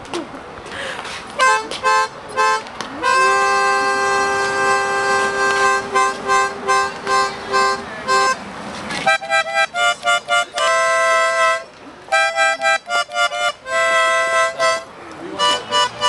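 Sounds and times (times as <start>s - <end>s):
two-tone car horn honking: 1.4s - 8.4s, 15.4s - 16.0s.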